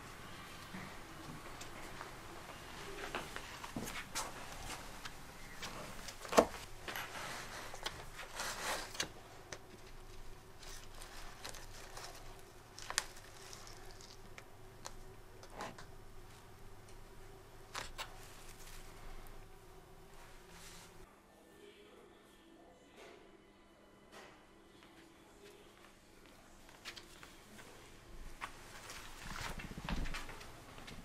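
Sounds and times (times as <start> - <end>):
plant rustling in plastic pot: 2.8 - 9.2, 9.8 - 15.0, 17.7 - 19.3, 28.4 - 30.4.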